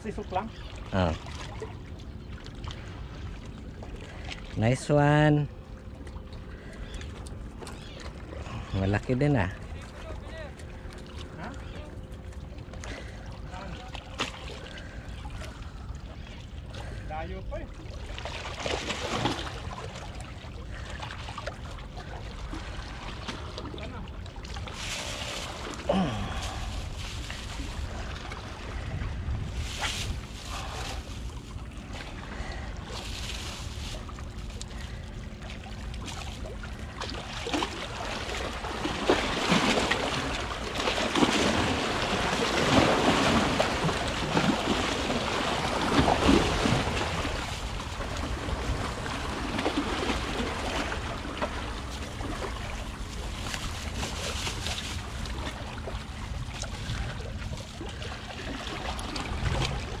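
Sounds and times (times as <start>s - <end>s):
wind on microphone: 26.2s - 31.0s.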